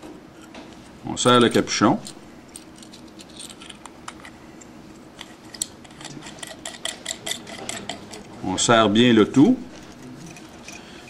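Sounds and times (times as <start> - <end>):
metal cap screwing clicks: 5.2 - 8.4.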